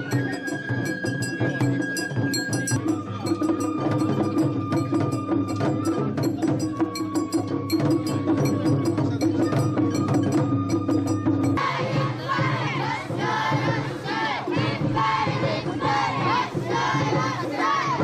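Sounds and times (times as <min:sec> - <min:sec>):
bamboo flute long notes: 0:00.0 - 0:12.0
taiko drumming: 0:00.0 - 0:18.0.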